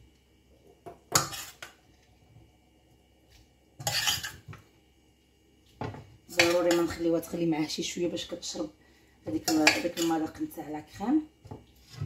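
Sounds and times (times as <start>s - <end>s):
utensil scraping steel pot: 1.1s - 1.7s, 3.8s - 4.4s.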